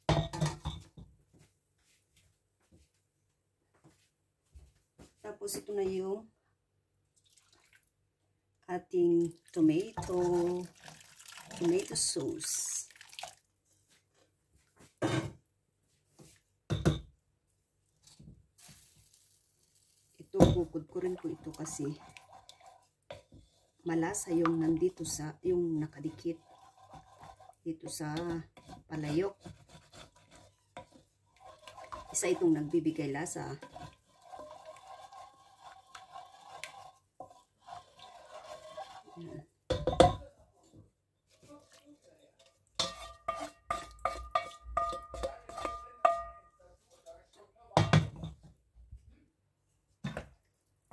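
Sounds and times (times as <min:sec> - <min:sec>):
utensil scraping sauce in wok: 0:21.0 - 0:39.5, 0:40.6 - 0:47.3
light kitchen clatter: 0:39.7 - 0:40.8, 0:42.3 - 0:47.1
wooden spatula knocking on pan: 0:42.8 - 0:46.5.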